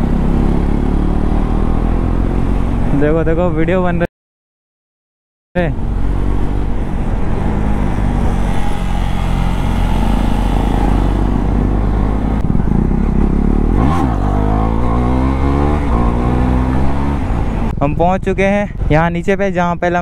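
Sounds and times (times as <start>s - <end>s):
motorcycle engine under way: 0.0s - 3.0s, 7.4s - 17.7s.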